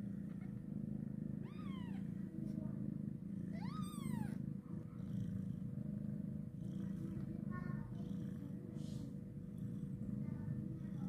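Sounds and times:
cat purring: 0:00.0 - 0:11.0
faint kitten squeak: 0:01.4 - 0:02.1, 0:03.5 - 0:04.4.

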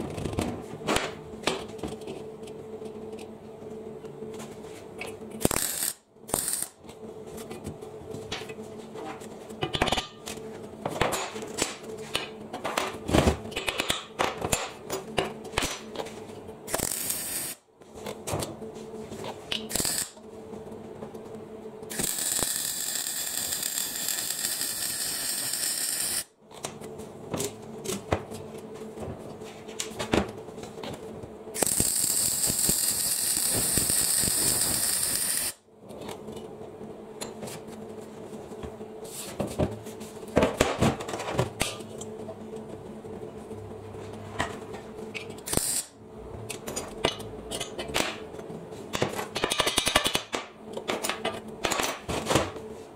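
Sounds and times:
steady hum: 0:00.0 - 0:52.9
welder arc sizzling and crackling: 0:05.4 - 0:06.8, 0:16.7 - 0:17.6, 0:19.6 - 0:20.2, 0:21.8 - 0:26.3, 0:31.5 - 0:35.6, 0:45.4 - 0:46.0.

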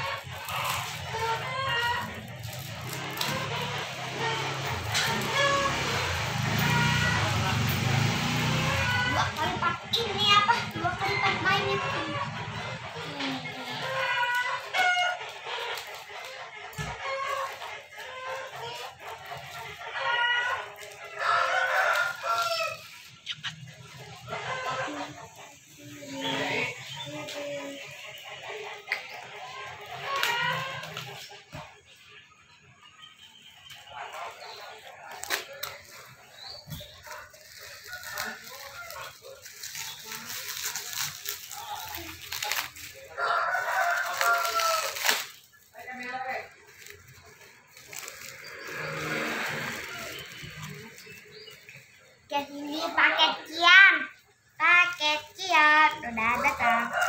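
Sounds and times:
rooster crowing: 0:20.0 - 0:22.9, 0:43.1 - 0:45.4
plastic bag crinkling: 0:35.1 - 0:51.8.

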